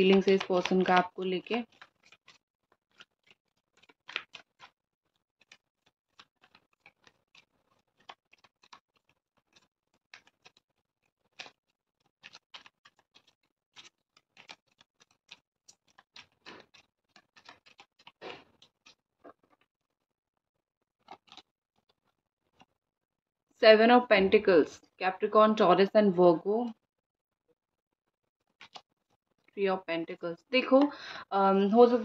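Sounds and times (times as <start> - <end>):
cards being shuffled: 0.0 - 19.7, 21.0 - 22.7, 28.5 - 29.2.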